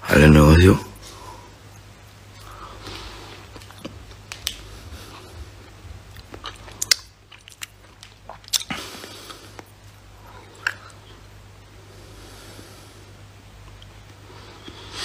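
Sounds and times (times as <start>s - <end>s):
lip smacks and tongue clicks: 3.3s - 11.1s.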